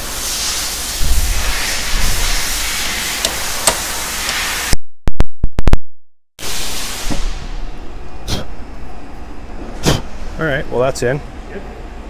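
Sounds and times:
hammer striking metal: 0:03.2 - 0:04.5.

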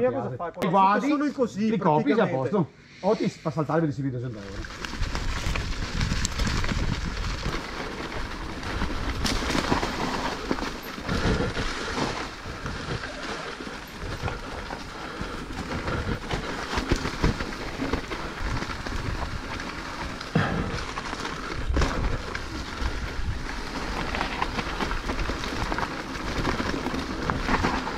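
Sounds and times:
bike rattling: 0:04.3 - 0:27.9
tyres rumbling on loose ground: 0:04.4 - 0:27.9.

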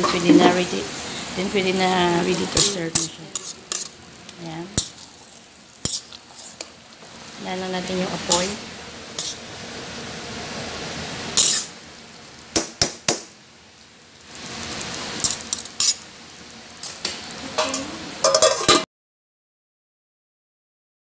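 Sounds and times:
low hiss of rice cooking: 0:00.0 - 0:18.8
metal utensil clinking on pot: 0:17.6 - 0:18.8.

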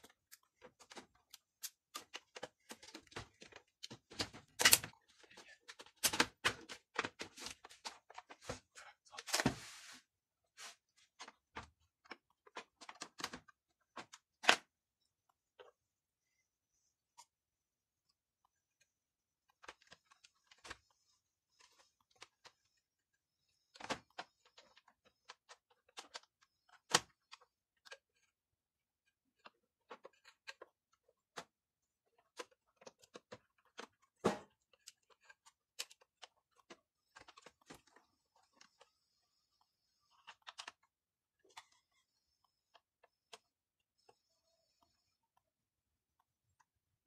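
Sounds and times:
plastic parts clicking: 0:00.0 - 0:08.4, 0:23.5 - 0:28.3.

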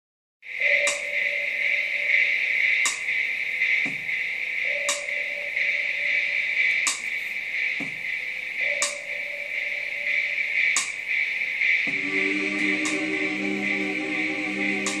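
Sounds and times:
high hiss-like drone: 0:00.5 - 0:15.0
choir-like chord: 0:11.9 - 0:15.0.

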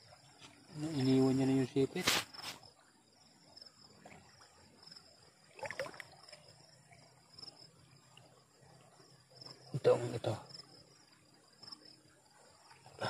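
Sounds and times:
insects trilling: 0:00.0 - 0:13.0
water sloshing: 0:03.9 - 0:07.2.

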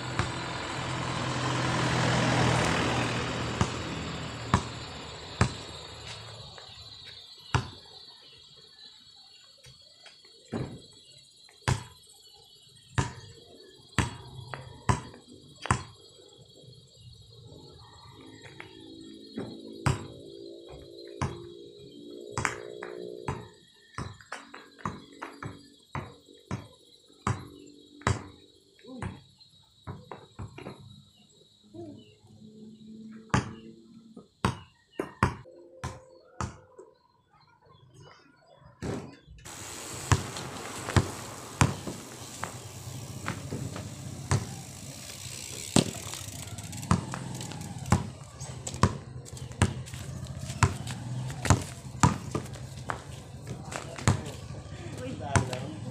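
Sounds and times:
basketball bouncing on asphalt: 0:00.0 - 0:01.0, 0:01.6 - 0:07.8, 0:11.6 - 0:12.0, 0:14.0 - 0:16.0, 0:19.8 - 0:21.4, 0:22.4 - 0:28.4, 0:34.4 - 0:36.6, 0:39.5 - 0:55.9
crickets trilling: 0:00.0 - 0:37.2, 0:39.5 - 0:55.9
basketball thudding: 0:50.5 - 0:54.2.

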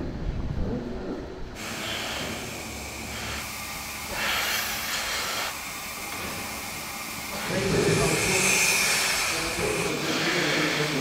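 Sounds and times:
loud rush of air hiss: 0:01.6 - 0:11.0
milking equipment hissing: 0:01.6 - 0:11.0.

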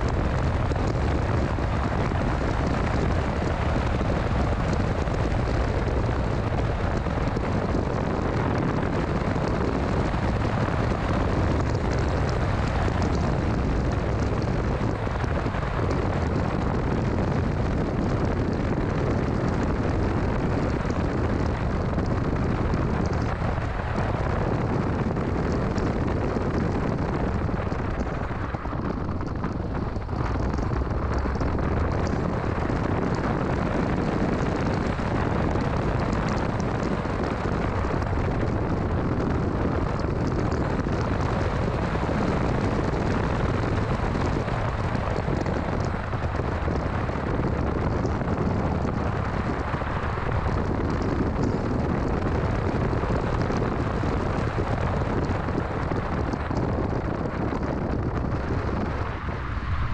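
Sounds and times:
car engine tyre and wind rumble: 0:00.0 - 0:59.9.

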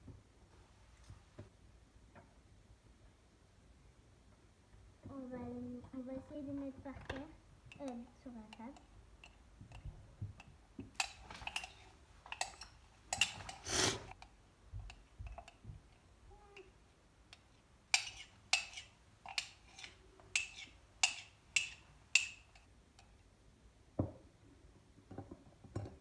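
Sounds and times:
metal spoon scraping ceramic mug: 0:11.0 - 0:14.0, 0:18.0 - 0:22.5.

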